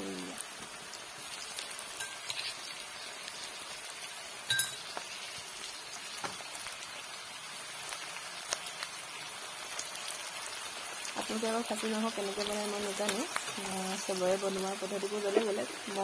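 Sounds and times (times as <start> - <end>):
food sizzling in hot oil: 0.0 - 16.0
sharp metallic clink: 4.5 - 4.8.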